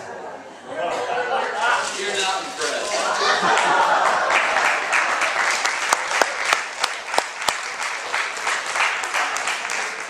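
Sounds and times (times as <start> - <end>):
audience applauding: 3.0 - 10.0.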